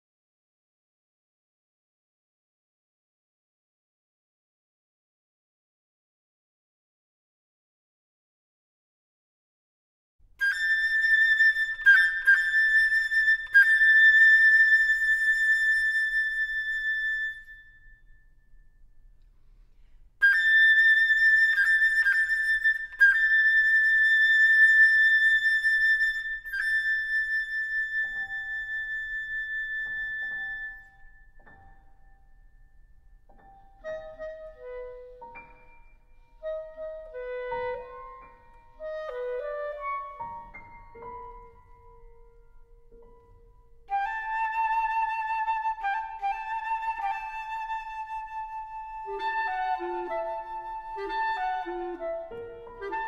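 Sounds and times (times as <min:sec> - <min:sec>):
flute playing high notes: 0:20.2 - 0:31.8, 0:43.9 - 0:53.0
soft high piano notes: 0:26.4 - 0:43.9.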